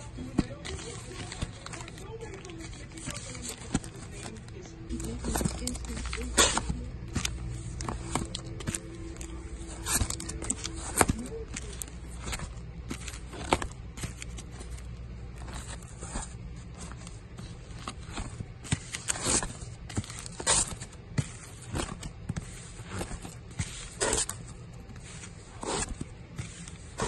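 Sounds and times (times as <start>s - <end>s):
low hum: 0.0s - 18.5s
records in plastic sleeves flipping: 0.0s - 27.0s.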